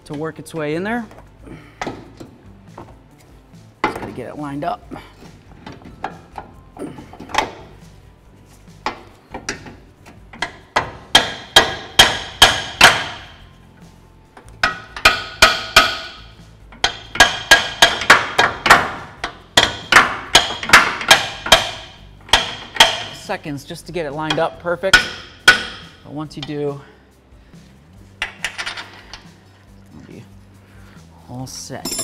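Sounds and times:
hammer striking metal: 10.4 - 13.4, 14.6 - 23.2, 24.3 - 26.5.

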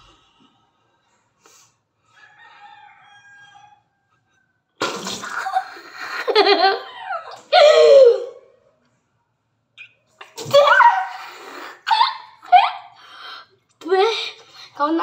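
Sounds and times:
child spluttering water: 4.8 - 5.7
child laughing: 5.2 - 8.4, 10.4 - 13.0.

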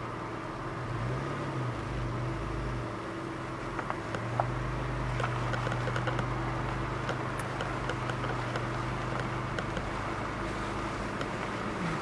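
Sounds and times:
car road and engine noise: 0.0 - 12.0
small ticks: 3.7 - 10.0, 11.1 - 11.5.

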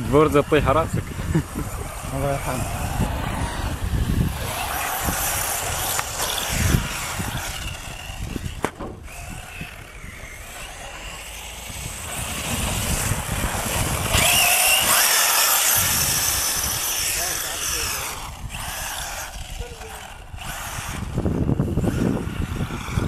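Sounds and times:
rc car motor whine: 0.0 - 23.0
sand spraying: 10.7 - 18.2.

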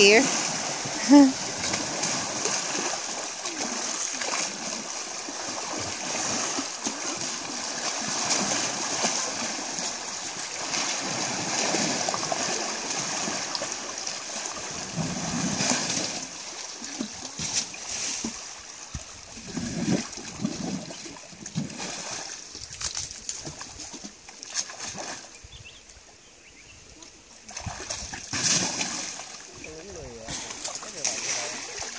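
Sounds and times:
elephant splashing in mud: 0.0 - 18.6, 27.5 - 29.4.

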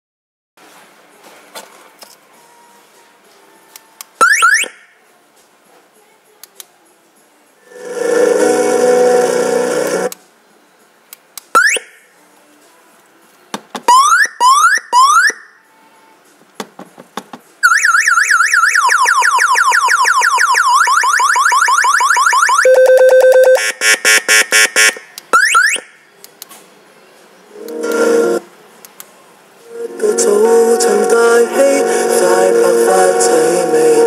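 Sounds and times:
warbling alarm siren: 17.6 - 23.7
fast beeps: 22.6 - 25.0.

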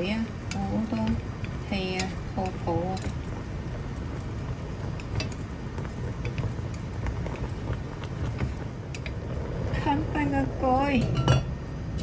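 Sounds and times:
soda boiling and bubbling: 0.0 - 12.0
chopsticks clicking against pot: 0.2 - 3.3, 4.8 - 9.2.

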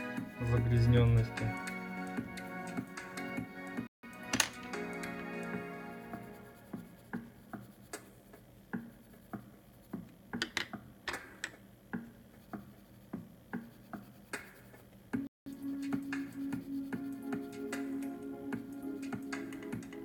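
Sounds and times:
background music: 0.0 - 8.1, 15.2 - 20.0
pencil scratching on paper: 5.9 - 10.1, 12.2 - 14.9, 15.5 - 19.2.

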